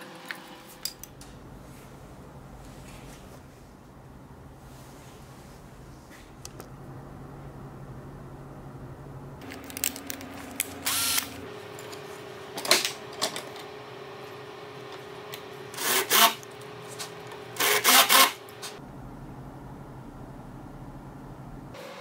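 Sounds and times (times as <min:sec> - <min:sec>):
cordless drill spinning into wood: 0:10.9 - 0:11.3.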